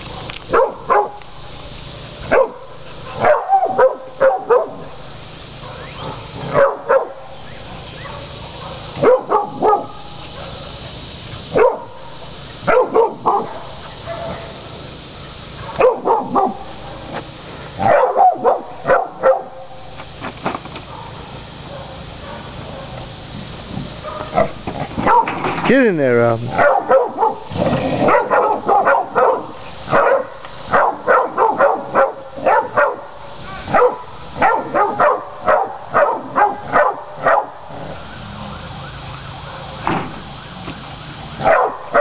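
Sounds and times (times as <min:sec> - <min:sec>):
dog barking: 0:00.1 - 0:01.2, 0:02.3 - 0:04.9, 0:05.6 - 0:07.3, 0:08.0 - 0:10.8, 0:11.5 - 0:14.6, 0:15.6 - 0:16.7, 0:17.8 - 0:19.6, 0:20.9 - 0:23.0, 0:24.0 - 0:25.4, 0:26.5 - 0:37.6, 0:39.4 - 0:39.8, 0:41.4 - 0:42.0.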